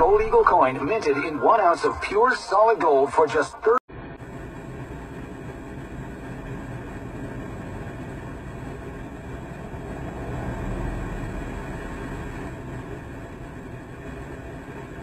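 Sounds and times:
vehicle engine and cab hum: 0:00.0 - 0:03.0, 0:03.6 - 0:15.0
passing vehicle rumble: 0:05.8 - 0:15.0.

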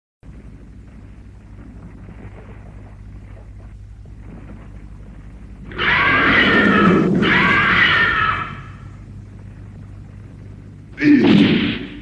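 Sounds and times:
faint steady hum: 0:00.2 - 0:12.0
monster screeching cry: 0:05.7 - 0:08.8.

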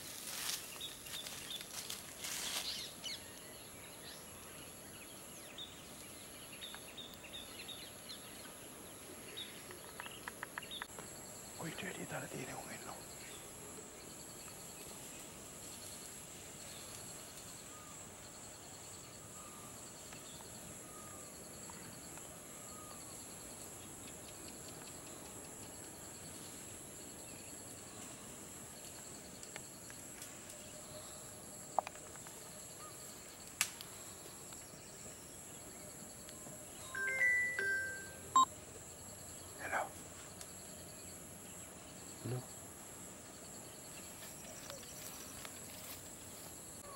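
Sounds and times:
insects buzzing: 0:00.0 - 0:46.9
insects chirping rapidly: 0:06.5 - 0:30.1, 0:30.7 - 0:46.9
sharp snaps: 0:33.4 - 0:33.9.

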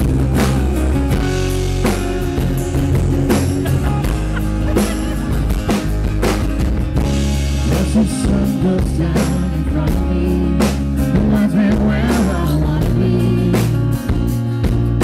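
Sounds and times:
acoustic guitars strummed: 0:00.0 - 0:15.0
man singing: 0:07.6 - 0:14.2.

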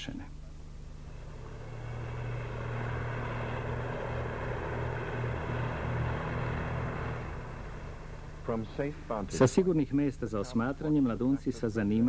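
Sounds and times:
tractor engine humming: 0:00.4 - 0:09.6.

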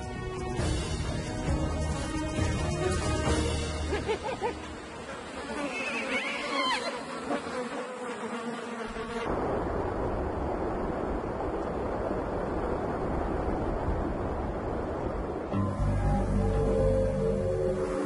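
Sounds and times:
flies buzzing: 0:02.5 - 0:09.3
steady rushing noise: 0:09.2 - 0:18.0.

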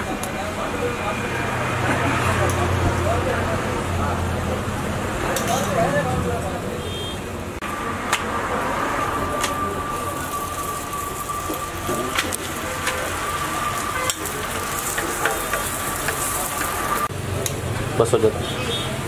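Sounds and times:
thin steady tone: 0:07.7 - 0:17.1
rotis sizzling on a griddle: 0:07.8 - 0:17.6.

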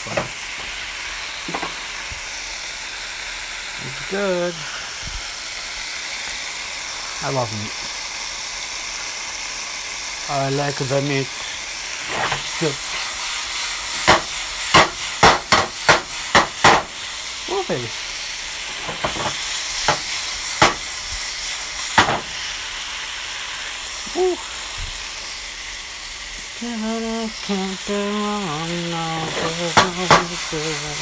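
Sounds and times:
steak sizzling in oil: 0:00.0 - 0:31.0
frying pan knocks: 0:01.5 - 0:01.8, 0:14.0 - 0:17.0, 0:18.8 - 0:20.9, 0:22.0 - 0:22.4, 0:29.3 - 0:30.4.

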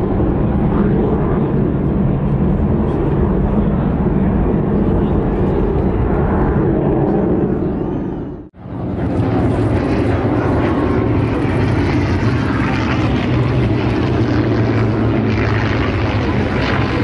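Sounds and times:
propeller plane engine drone: 0:00.0 - 0:17.0.

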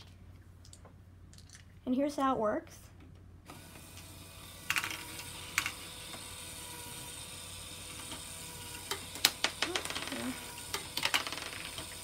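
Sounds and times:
small motor and gears whirring: 0:03.5 - 0:12.0.

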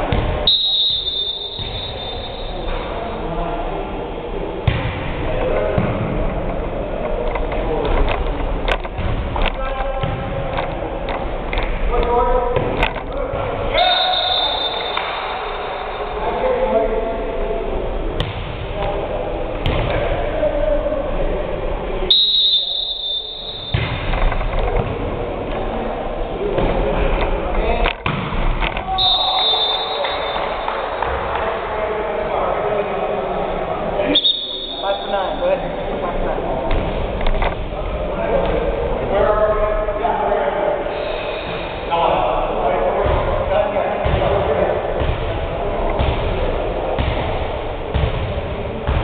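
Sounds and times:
volleyball game in a gym: 0:00.0 - 0:49.0
referee's whistle blast: 0:00.4 - 0:02.7, 0:13.8 - 0:15.2, 0:22.1 - 0:23.8, 0:28.9 - 0:30.6, 0:34.1 - 0:35.4.

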